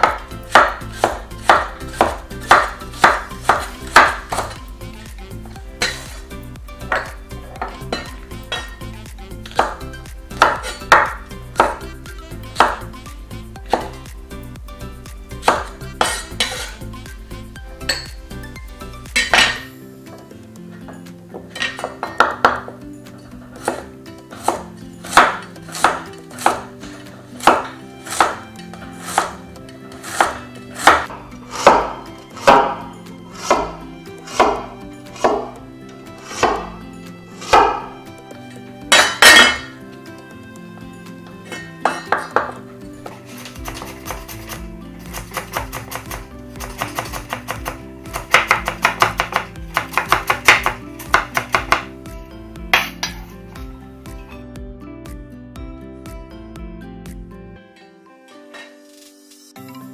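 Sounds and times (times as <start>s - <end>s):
knife chopping on wooden board: 0.0s - 4.6s, 6.9s - 8.8s, 9.5s - 11.8s, 12.6s - 12.9s, 13.7s - 14.0s, 15.4s - 16.8s, 21.4s - 22.8s, 23.5s - 29.4s, 30.0s - 35.6s, 36.2s - 36.7s, 37.4s - 37.9s, 41.6s - 51.9s, 52.8s - 53.3s
soft background music: 0.0s - 59.9s.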